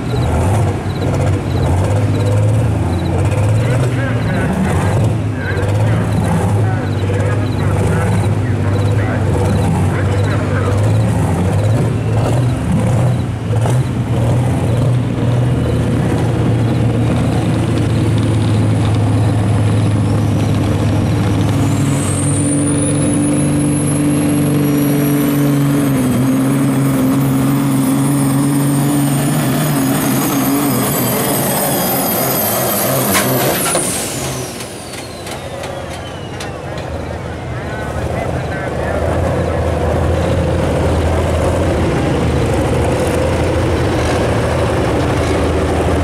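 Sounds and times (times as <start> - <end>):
diesel truck engine pulling hard: 0.0 - 46.0
turbocharger whistle: 27.4 - 37.0.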